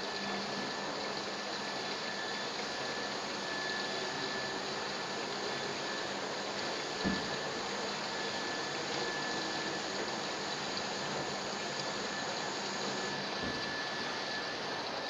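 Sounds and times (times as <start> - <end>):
faint high whine: 0.0 - 15.0
dry-cleaning machine rushing hiss: 2.9 - 14.6.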